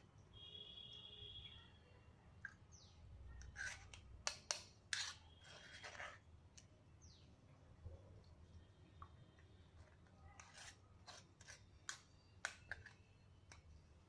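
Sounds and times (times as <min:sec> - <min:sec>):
spoon scraping metal strainer: 0:03.4 - 0:06.3, 0:09.7 - 0:13.6.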